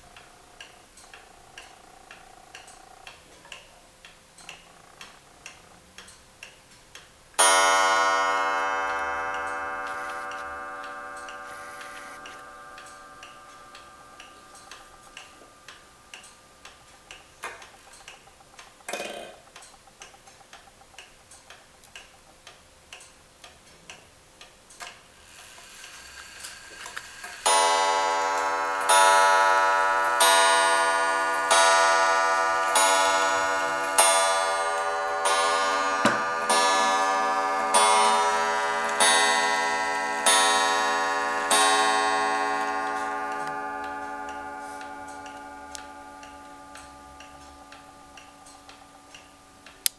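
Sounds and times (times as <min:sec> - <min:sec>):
clock ticking: 0:00.0 - 0:25.1, 0:27.2 - 0:49.9
clock gong strikes: 0:07.4 - 0:16.1, 0:27.5 - 0:49.0
clock striking mechanism whir: 0:07.4 - 0:18.9, 0:24.8 - 0:49.9.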